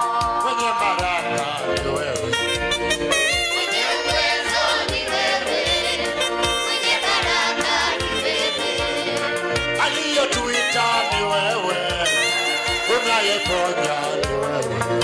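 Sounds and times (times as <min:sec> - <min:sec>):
choir singing gospel: 0:00.0 - 0:02.4, 0:03.3 - 0:12.8
band with steady drum beat: 0:00.0 - 0:15.0.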